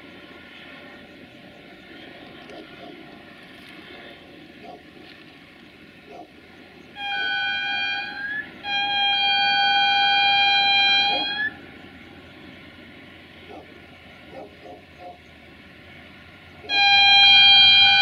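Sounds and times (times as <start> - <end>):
diesel locomotive horn blasts: 6.9 - 13.5, 15.9 - 18.0.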